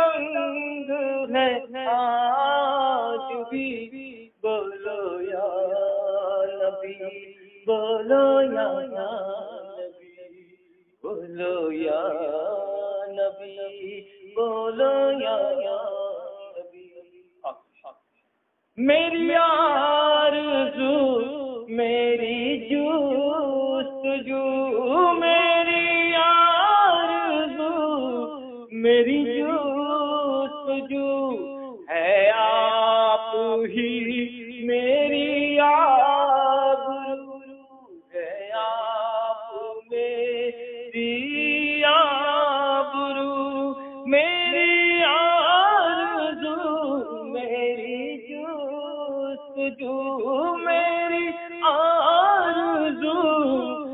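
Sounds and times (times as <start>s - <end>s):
man singing unaccompanied: 0.0s - 18.0s, 18.8s - 53.9s.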